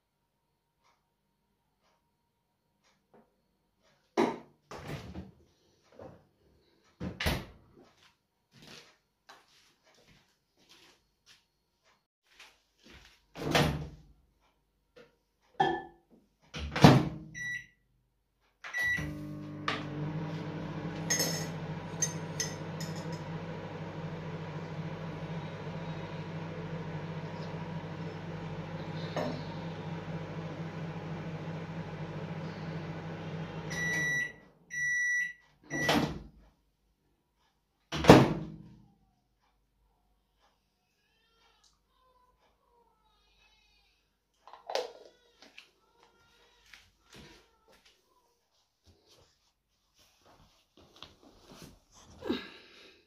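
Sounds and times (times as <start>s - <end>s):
microwave beeping: 17.2s - 17.8s, 18.7s - 36.3s
microwave humming: 18.8s - 36.3s.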